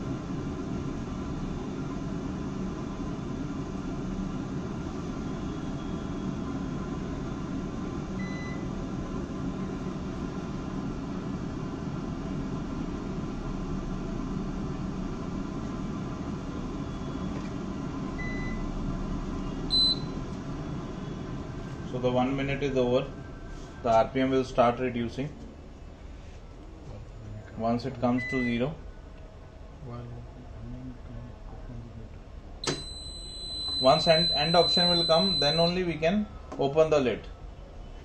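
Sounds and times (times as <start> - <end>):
short high beep: 19.7 - 20.2
centrifuge humming: 26.8 - 36.0.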